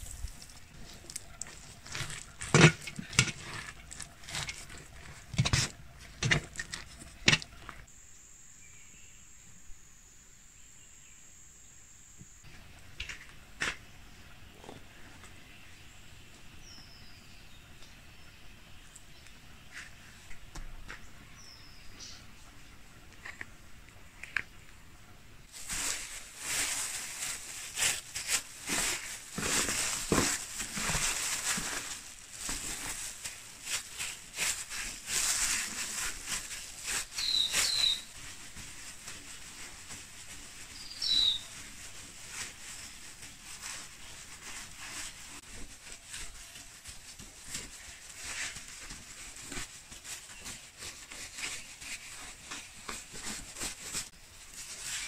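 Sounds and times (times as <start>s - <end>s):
plastic gloves crinkling: 0.0s - 7.9s, 25.4s - 55.0s
bird chirps: 37.2s - 38.1s, 40.8s - 41.5s.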